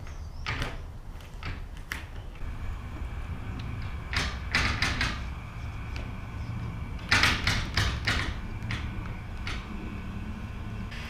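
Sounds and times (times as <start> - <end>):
steady low rumble: 2.4 - 11.0.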